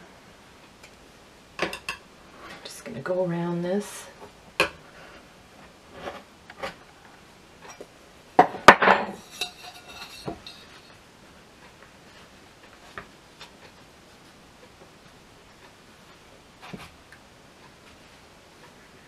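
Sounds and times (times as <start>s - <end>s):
metal tin clattering: 8.6s - 10.9s
knife scraping metal tart tin: 9.1s - 10.9s.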